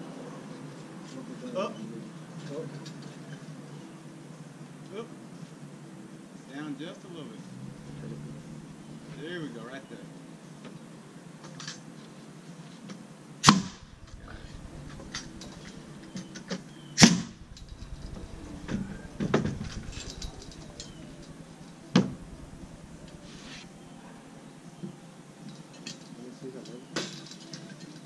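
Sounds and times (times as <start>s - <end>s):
pneumatic nail gun firing: 13.4s - 13.8s.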